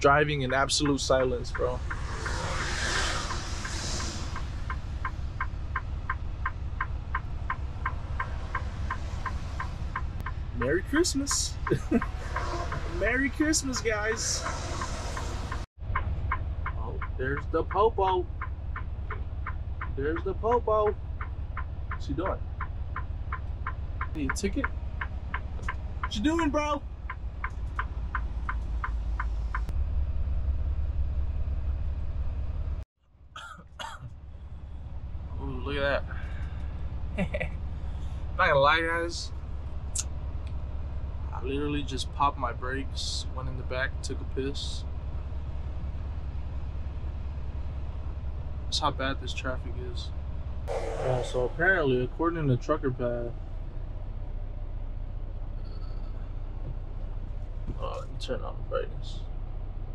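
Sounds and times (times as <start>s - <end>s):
truck engine rumble: 0.0s - 59.9s
hiss: 1.6s - 4.9s
flasher relay ticking: 3.6s - 29.7s.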